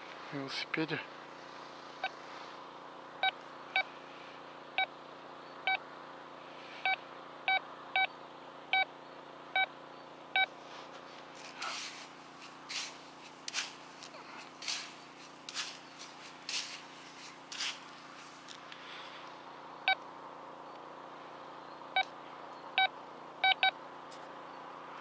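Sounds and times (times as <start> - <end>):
digging tool scraping sand: 10.8 - 18.5.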